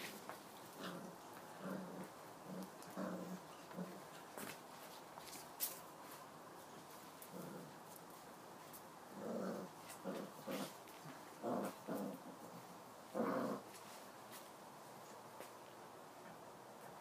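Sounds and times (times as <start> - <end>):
puppies growling and yapping: 0.0 - 4.1, 9.1 - 13.8.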